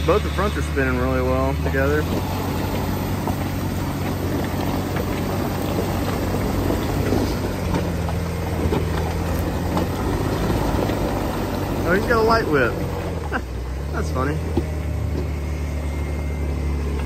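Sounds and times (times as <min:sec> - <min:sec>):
engine running under load: 0:00.0 - 0:17.0
tires spinning in mud: 0:00.0 - 0:17.0.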